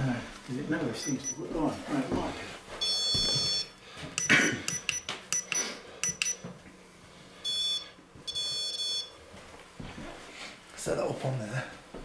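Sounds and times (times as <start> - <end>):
steady high beep: 1.0 - 1.4, 2.8 - 6.5, 7.4 - 9.1
electronic sensor chirps: 2.8 - 6.4, 7.4 - 9.1.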